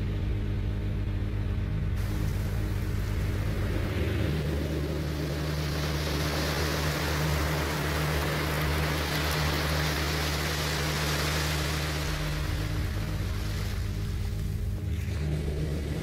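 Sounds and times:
low electronic drone: 0.0 - 16.0
wide hiss: 2.0 - 14.7.

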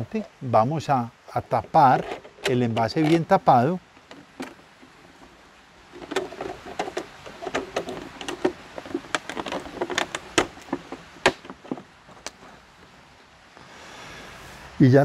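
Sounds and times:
plastic bottle crackling: 3.9 - 12.4.

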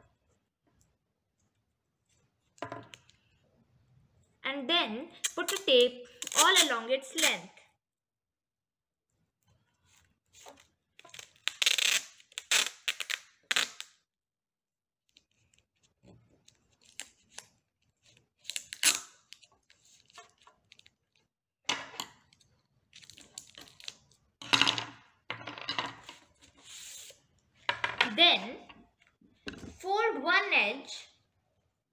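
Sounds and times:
tape ripping off roll: 11.1 - 14.0.

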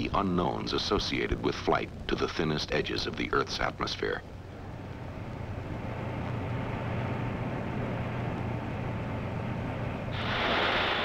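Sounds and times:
low machinery hum: 0.0 - 11.0
rush of air from wind tunnel: 6.4 - 11.0.

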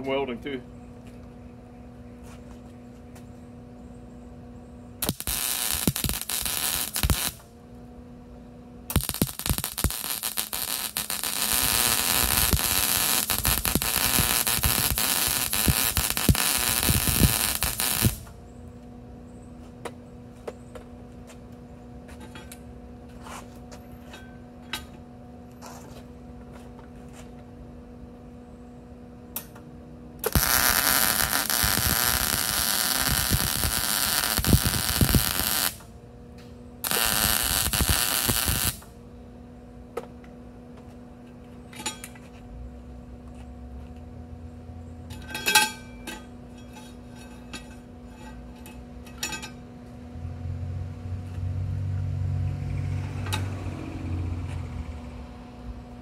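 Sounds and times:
steady hum: 0.0 - 51.3
welding arc crackling and hissing: 5.0 - 7.4, 8.9 - 18.3, 30.2 - 35.9, 36.8 - 38.9.

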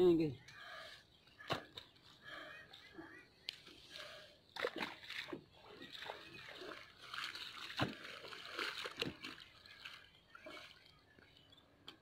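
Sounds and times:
wet thuds and splashes: 1.4 - 1.9, 4.6 - 10.6.

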